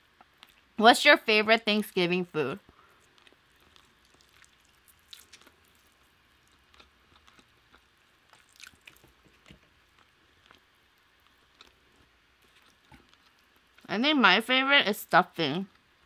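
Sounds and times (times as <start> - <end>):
person chewing food: 0.0 - 0.8, 2.6 - 13.9.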